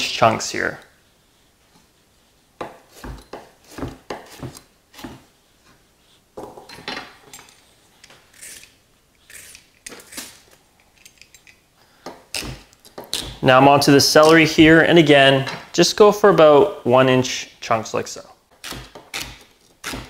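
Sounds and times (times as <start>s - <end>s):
knife chopping on wooden board: 2.6s - 5.3s, 18.6s - 20.0s
knife scraping on board: 2.6s - 5.8s, 7.2s - 10.4s.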